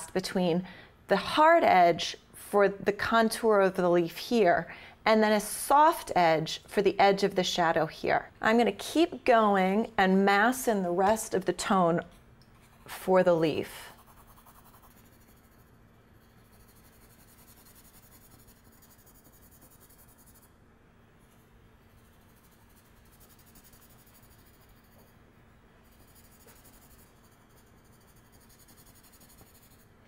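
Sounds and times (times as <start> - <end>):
pencil scratching on paper: 12.6 - 20.5, 21.2 - 25.2, 25.8 - 29.9.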